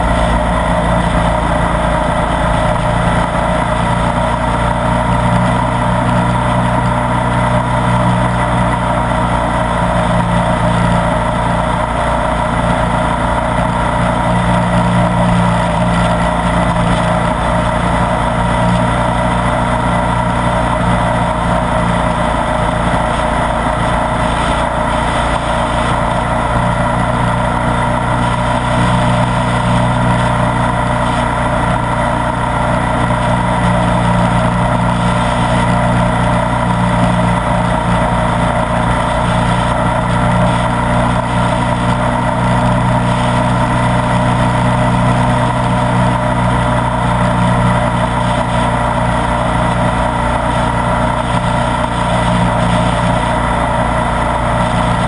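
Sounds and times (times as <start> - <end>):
motorcycle engine cruising: 0.0 - 55.0.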